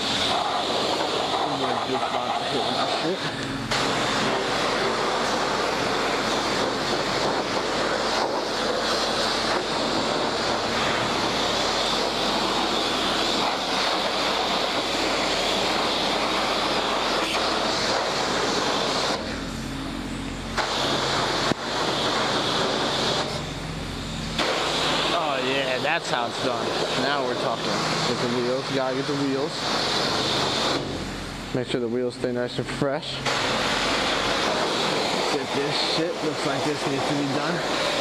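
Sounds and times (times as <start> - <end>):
low steady hum: 0.0 - 21.9, 22.6 - 30.2
pressure washer spray hissing: 0.0 - 38.0.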